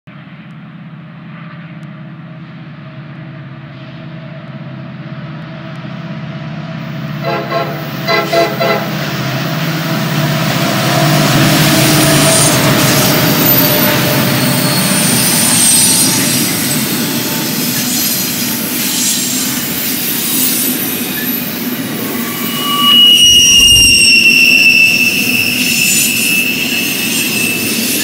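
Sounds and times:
diesel locomotive engine hum: 0.2 - 28.0
train wheel noise: 4.2 - 28.0
short train horn blasts: 7.2 - 9.0, 21.8 - 27.6.

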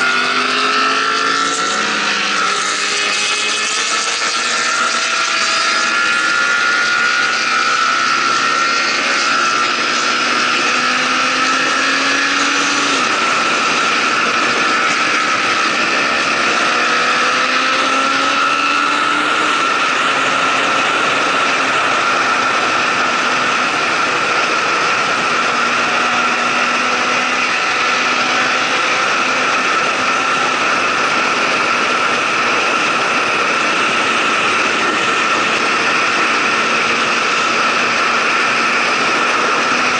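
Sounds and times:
motorcycle engine cruising: 0.0 - 39.9
wind rush on microphone: 0.0 - 39.9.

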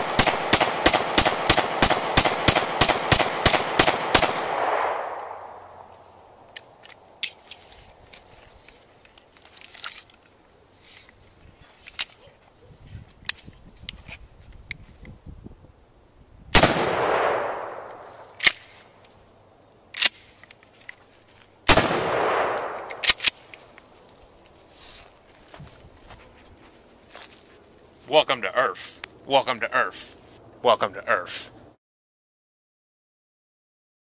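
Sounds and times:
shotgun shots with rolling echo: 0.0 - 5.7, 16.5 - 18.0, 21.7 - 23.3
shotgun shells loading clicks: 9.0 - 10.6, 19.8 - 21.0, 22.5 - 23.9.

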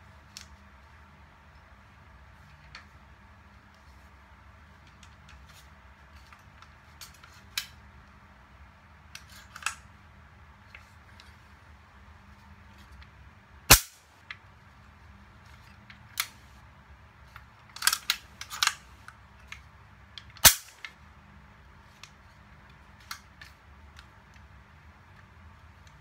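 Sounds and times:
loud snaps: 13.7 - 14.0, 20.4 - 20.9.

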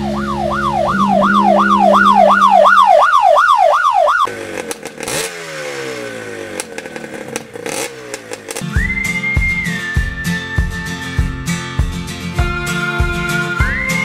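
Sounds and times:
siren yelping: 0.0 - 4.3
engine drone: 0.0 - 10.6
motorcycle engine: 0.0 - 13.2.

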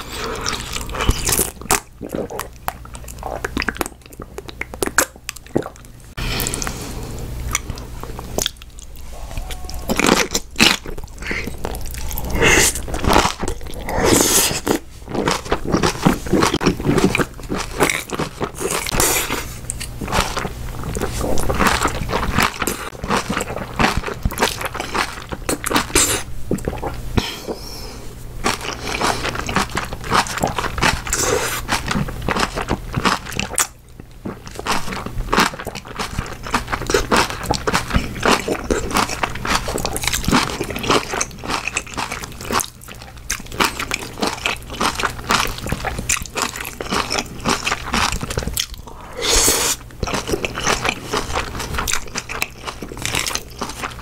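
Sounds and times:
chewing and crunching food: 0.0 - 27.7, 28.3 - 54.0.

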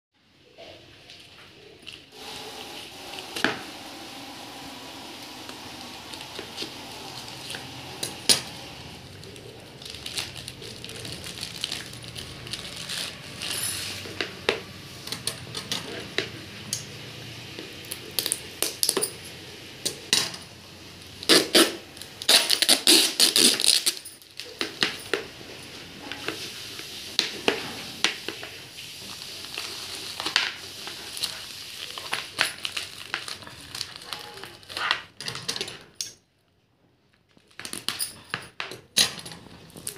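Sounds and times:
plastic packaging crinkling: 1.8 - 16.3, 21.0 - 36.0, 37.2 - 38.2.

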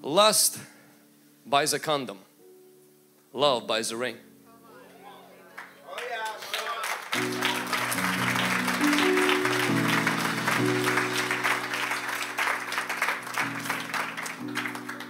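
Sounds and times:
congregation applauding: 5.0 - 15.0
keyboard sustained chords: 7.0 - 15.0.

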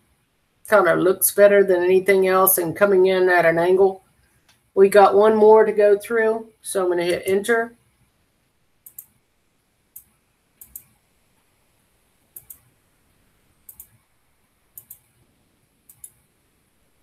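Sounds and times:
computer mouse clicking: 8.8 - 9.2, 9.9 - 11.0, 12.3 - 12.7, 13.7 - 14.0, 14.8 - 15.2, 15.8 - 16.2.

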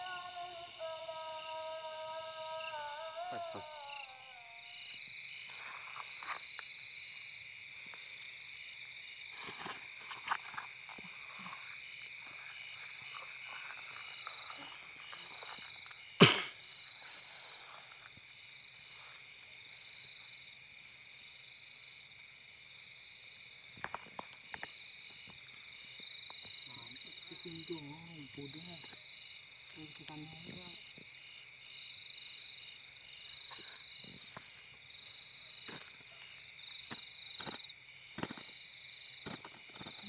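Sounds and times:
night insects trilling: 0.0 - 40.0
rustling of grass and net: 9.2 - 16.0.

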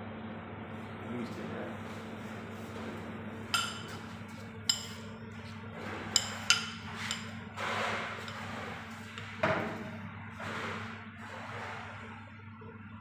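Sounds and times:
steady low hum: 0.0 - 13.0
metal spoon clinking on ceramic: 3.5 - 4.0, 4.7 - 5.0, 6.2 - 7.3.

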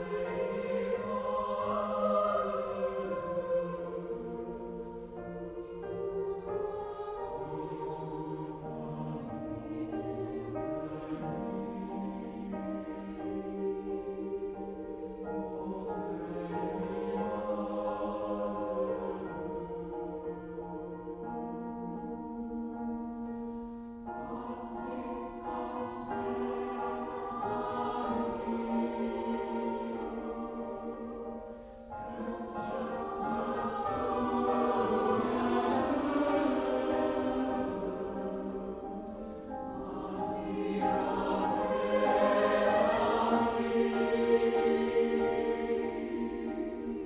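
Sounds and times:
choir singing sustained chords: 0.0 - 47.0.

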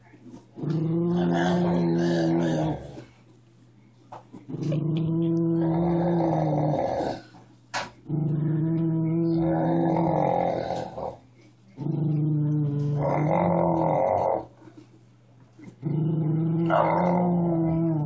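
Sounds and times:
dog growling: 0.6 - 3.2, 4.4 - 7.4, 8.0 - 11.2, 11.8 - 14.6, 15.6 - 18.0.

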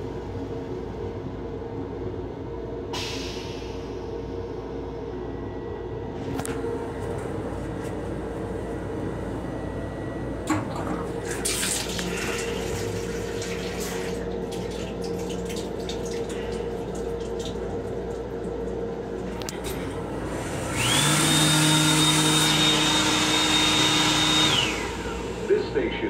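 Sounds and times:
railcar hum: 0.0 - 26.0
faucet running water into basin: 11.2 - 19.4.

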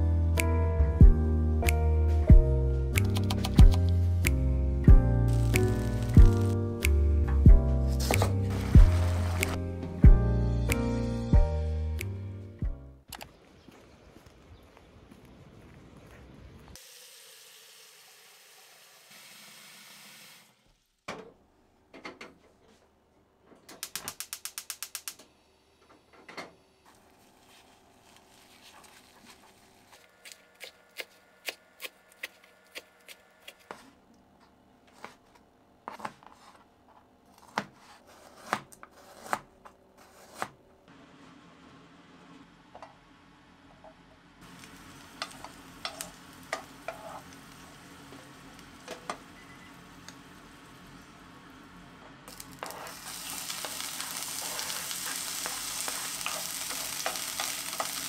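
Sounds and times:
quick run of clicks: 3.0 - 3.9.

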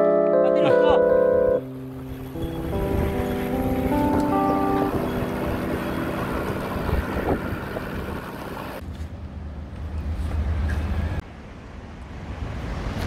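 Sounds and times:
passing traffic: 0.3 - 13.0
road noise: 0.6 - 13.0
wind rumble on microphone: 2.0 - 8.8.

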